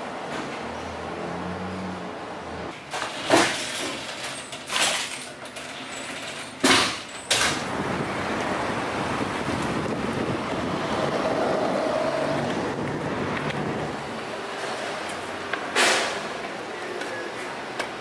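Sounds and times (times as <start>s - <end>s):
steel door banging shut: 2.8s - 7.7s, 15.7s - 16.4s
steady rushing noise: 7.6s - 15.4s.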